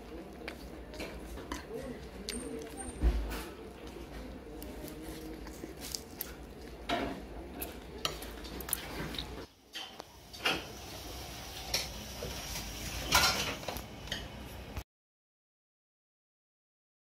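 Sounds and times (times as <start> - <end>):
dishes and cutlery clinking: 5.8 - 10.7, 13.0 - 14.3.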